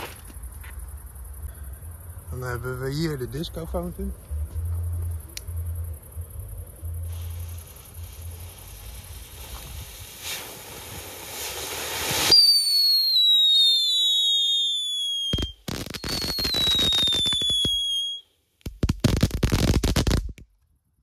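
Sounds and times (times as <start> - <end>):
firework hissing: 6.9 - 20.4
firework crackling: 7.0 - 20.5
firework whistle falling in pitch: 12.2 - 18.2.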